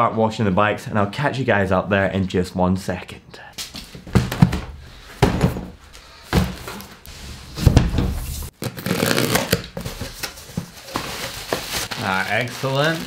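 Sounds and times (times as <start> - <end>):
cardboard rustling and scraping: 3.8 - 13.0
dull thuds of cardboard boxes: 4.0 - 6.9, 7.5 - 8.5.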